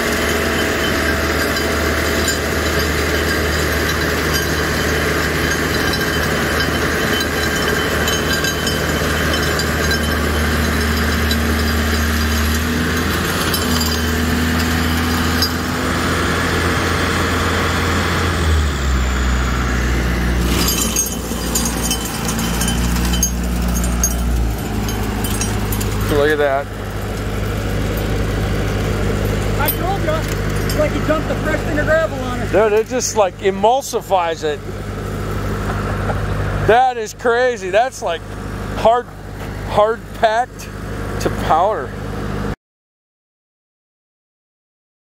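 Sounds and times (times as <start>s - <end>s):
rotary tiller grinding gravel: 0.0s - 42.5s
tractor engine under load: 0.0s - 42.5s
stones rattling: 0.1s - 15.6s, 20.4s - 31.1s.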